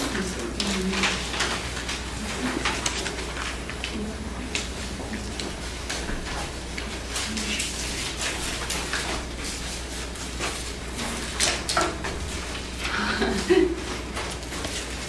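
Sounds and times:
paper rustling: 0.0 - 15.0.

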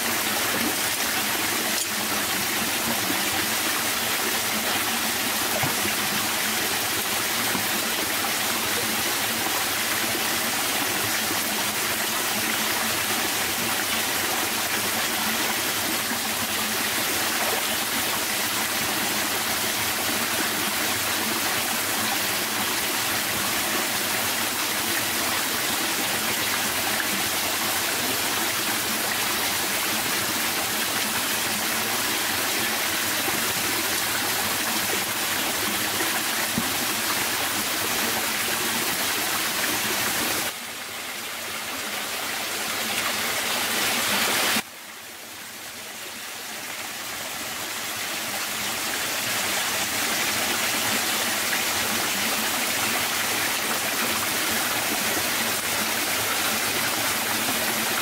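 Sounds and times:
stream rushing over rocks: 0.0 - 58.0.

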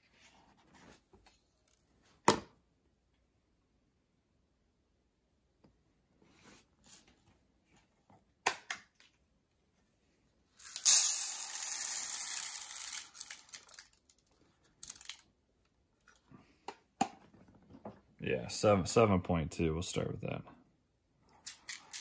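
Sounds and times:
dry rice grains pouring into bowl: 10.6 - 13.8.

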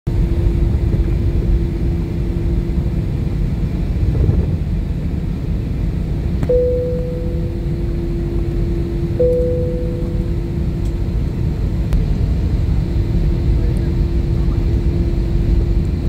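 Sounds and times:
jet engines rumbling in cabin: 0.1 - 16.0
higher steady tone: 6.4 - 11.8.

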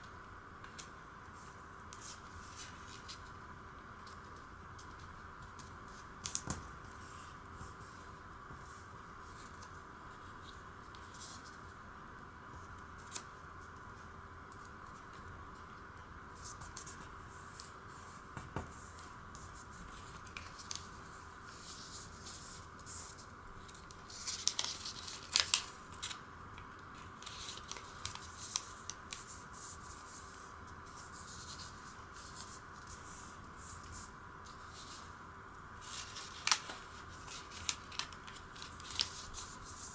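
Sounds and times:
faint background hum: 0.0 - 39.9
paper rustling and creasing: 18.8 - 26.2, 26.9 - 35.1, 35.8 - 39.9.

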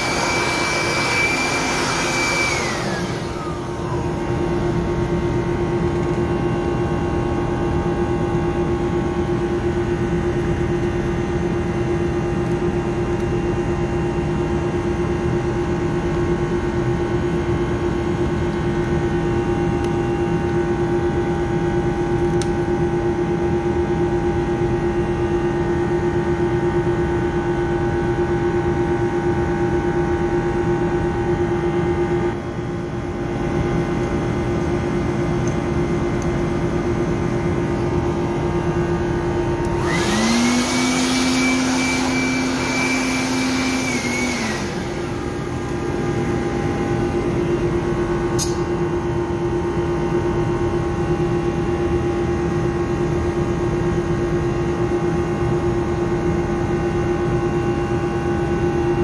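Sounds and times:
electric motor whine winding down: 0.0 - 8.8, 37.7 - 49.0.

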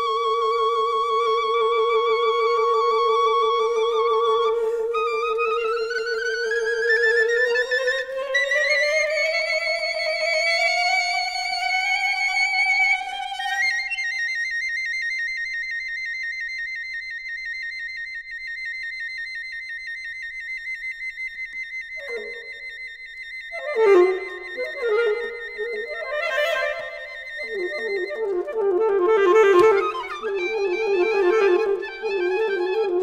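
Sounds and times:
piccolo: 0.0 - 18.2, 21.2 - 33.0
alto saxophone: 22.0 - 22.7, 23.5 - 33.0.

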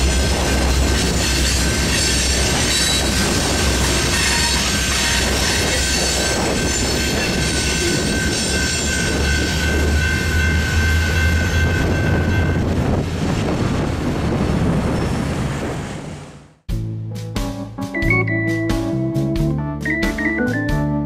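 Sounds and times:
railroad crossing bell ringing: 0.0 - 12.8
freight train rumble: 0.0 - 16.6.

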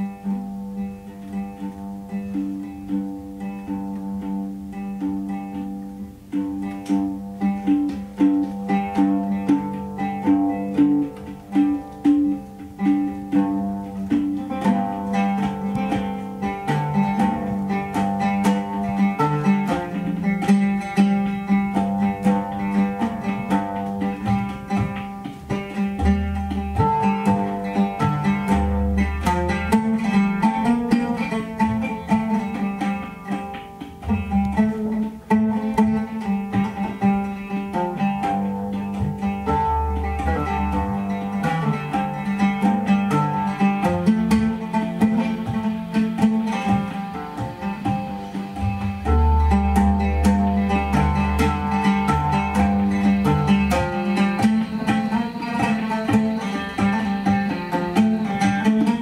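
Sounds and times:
oud plucked in rippling runs: 0.0 - 59.0.

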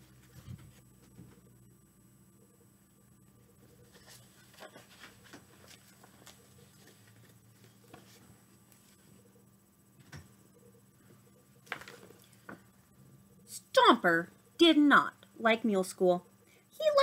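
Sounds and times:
low steady hum: 0.0 - 17.0
book pages rustling: 3.7 - 9.2, 11.6 - 12.6.

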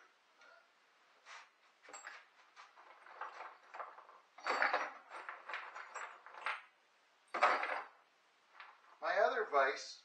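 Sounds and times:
metal clinks and knocks from vise: 1.8 - 8.0.

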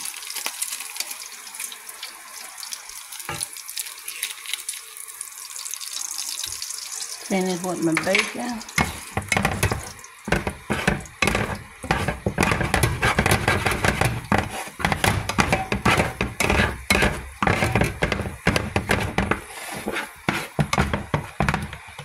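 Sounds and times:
eggs sizzling in grease: 0.0 - 22.0
spatula scraping frying pan: 8.0 - 22.0.

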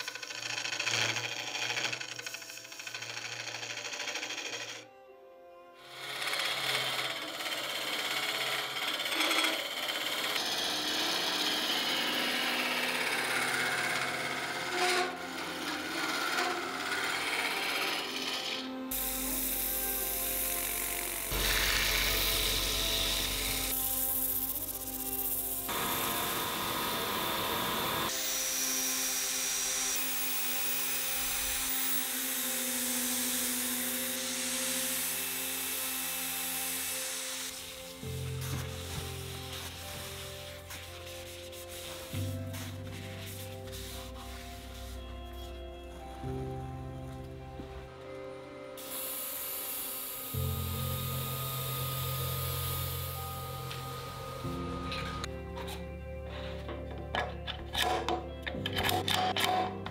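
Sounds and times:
gouge scraping wood on lathe: 0.0 - 4.8, 5.9 - 19.6
lathe sanding wood: 0.0 - 4.8, 5.9 - 45.5, 48.8 - 55.3
power drill whine: 0.0 - 5.0, 5.8 - 24.7, 25.6 - 40.4, 48.8 - 55.4
abrasive sanding hiss: 18.9 - 45.6, 48.8 - 54.7.

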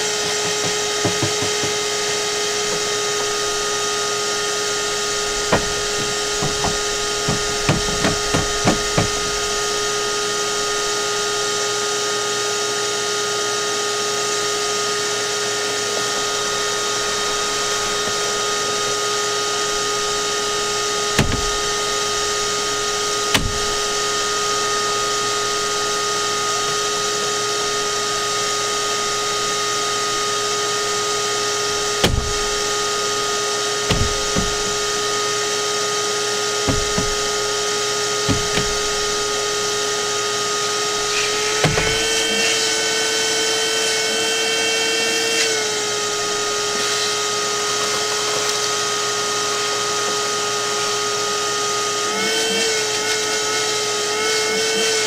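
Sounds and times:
machine motor whining: 0.0 - 55.0
knocks and clatters: 0.2 - 1.9, 5.3 - 9.3, 33.9 - 34.8, 36.7 - 37.4, 38.2 - 39.4.

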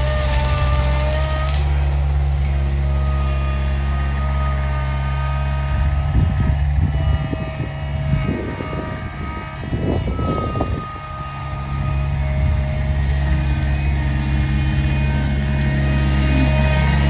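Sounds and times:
crackling and rattling: 0.0 - 2.9
skid steer engine running: 0.0 - 17.0.

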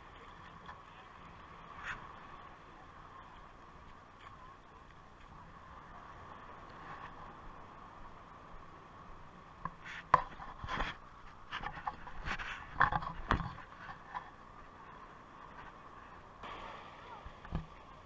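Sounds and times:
faint steady hiss: 0.0 - 18.0
clicks taps and scrapes: 9.6 - 14.3.

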